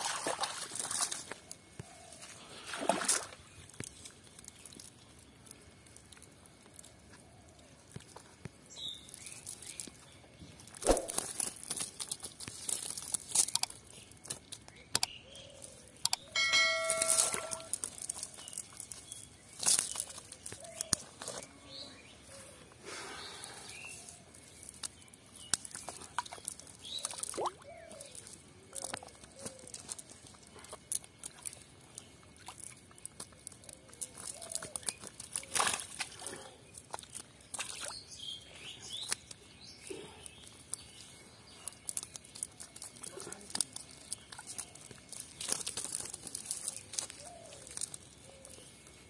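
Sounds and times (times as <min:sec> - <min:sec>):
fish slapping against wet mud: 0:00.0 - 0:01.8, 0:10.7 - 0:15.1, 0:24.6 - 0:31.6, 0:32.3 - 0:38.0.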